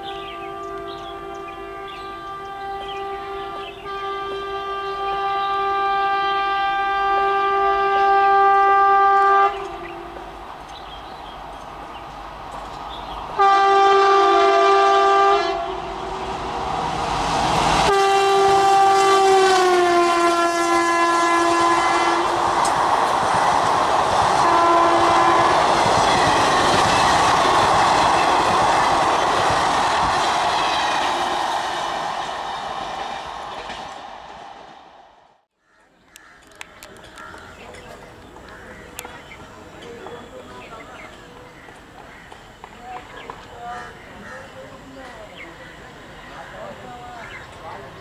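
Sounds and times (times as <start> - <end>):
locomotive horn blasts: 0.0 - 10.2, 13.4 - 16.0, 17.8 - 22.4, 24.4 - 28.4
train wheels rushing and clattering: 22.0 - 35.2.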